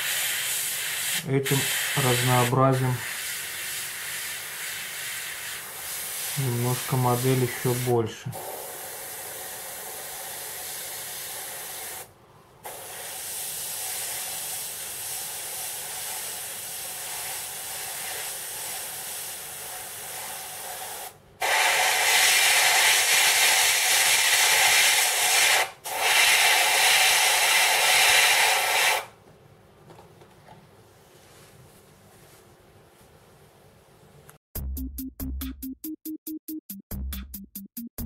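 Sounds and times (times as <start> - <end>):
airbrush hissing: 0.0 - 29.1.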